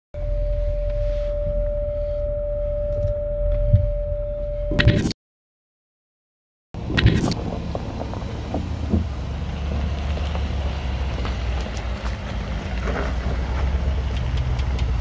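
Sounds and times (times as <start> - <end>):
low engine rumble: 6.8 - 15.0
stones crackling under tyres: 6.9 - 15.0.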